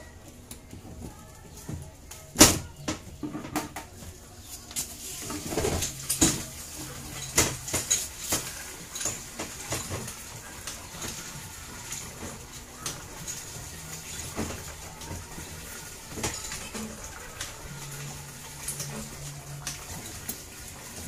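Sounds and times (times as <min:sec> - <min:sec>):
clicks and knocks of machine parts: 0:04.7 - 0:21.0.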